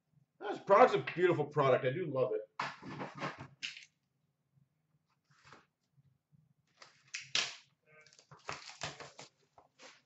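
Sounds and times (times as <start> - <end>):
card packs and box rustling: 8.0 - 10.0.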